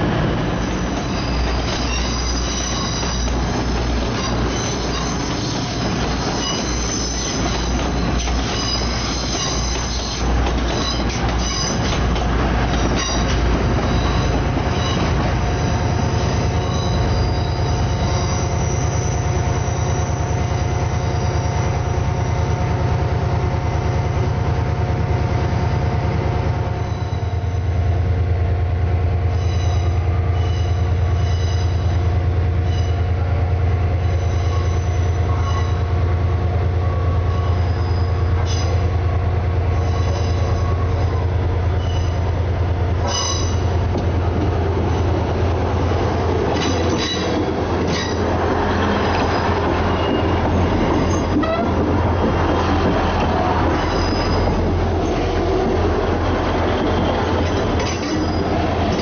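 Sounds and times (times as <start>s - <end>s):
train low drone: 0.0s - 59.0s
wheel squeal: 1.0s - 3.4s, 4.1s - 12.0s, 12.8s - 20.5s, 37.2s - 38.8s, 46.6s - 51.8s, 53.6s - 55.4s, 56.3s - 59.0s.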